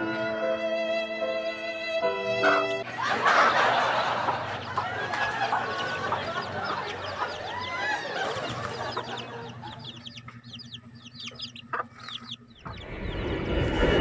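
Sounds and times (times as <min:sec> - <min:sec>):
hen clucking: 0:03.0 - 0:13.2
chicks peeping: 0:03.1 - 0:13.8
loud rushing noise: 0:12.7 - 0:14.0.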